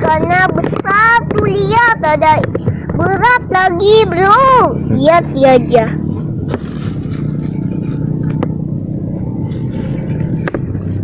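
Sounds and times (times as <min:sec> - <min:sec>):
boat engine humming: 0:00.0 - 0:11.0.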